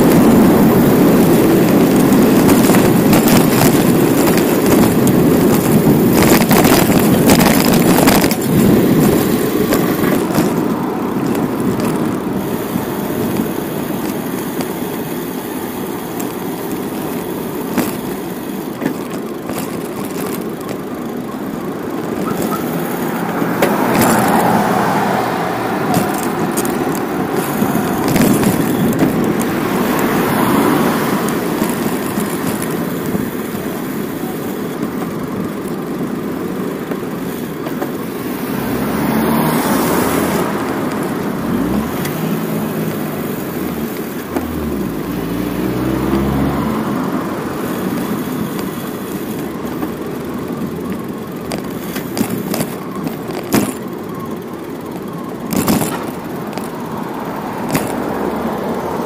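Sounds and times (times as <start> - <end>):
road traffic: 0.0 - 59.0
vehicle engine passing: 21.8 - 31.9, 38.4 - 48.0, 55.6 - 59.0.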